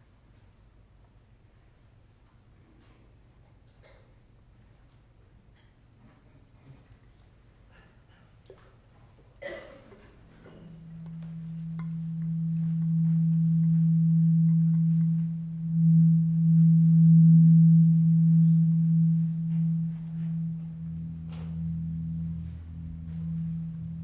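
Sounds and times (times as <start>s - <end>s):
low sustained tone: 10.2s - 24.0s
lower sustained tone: 10.3s - 24.0s.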